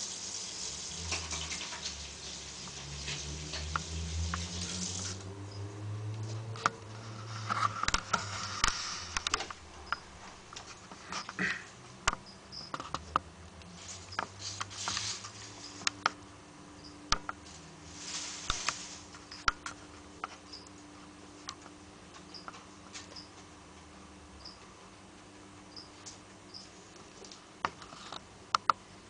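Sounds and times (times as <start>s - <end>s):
wood chips crackling: 13.7s - 16.0s, 17.4s - 19.8s
rustling: 13.7s - 16.1s, 17.4s - 20.1s.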